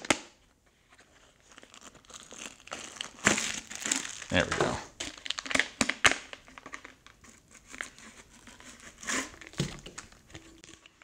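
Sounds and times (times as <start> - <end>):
plastic bags crinkling: 1.2 - 7.9.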